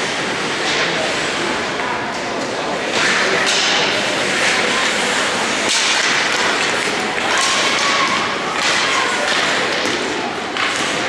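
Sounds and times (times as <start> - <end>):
hockey sticks and puck thudding: 1.7 - 11.0
skate blades scraping ice: 2.8 - 11.0.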